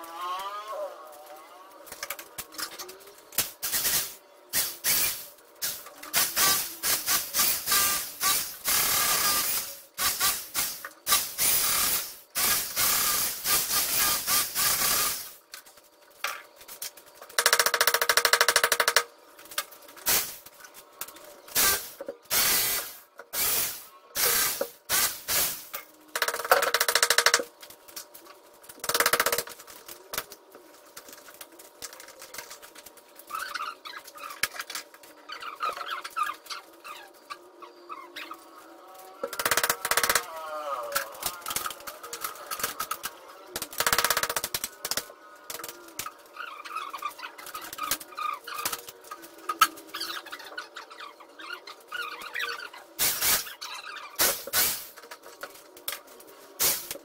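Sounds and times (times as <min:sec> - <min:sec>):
electric power tool bursts: 0:03.6 - 0:15.4, 0:21.6 - 0:25.7.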